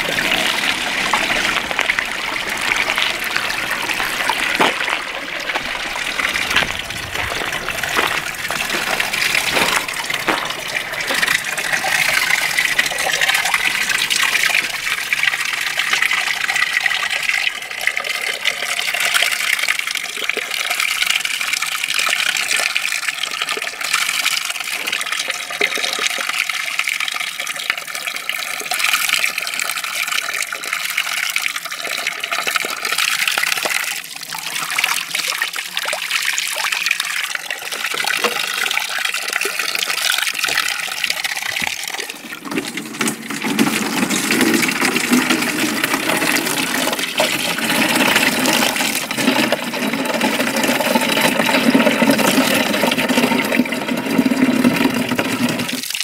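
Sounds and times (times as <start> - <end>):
water splashing into stone basin: 0.0 - 17.5, 32.5 - 56.0.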